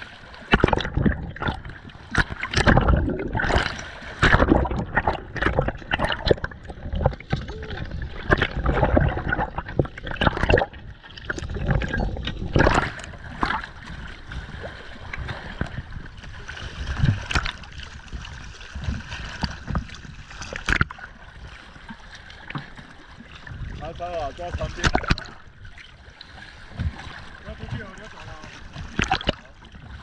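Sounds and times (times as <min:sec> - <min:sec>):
water sloshing around boat: 0:00.0 - 0:30.0.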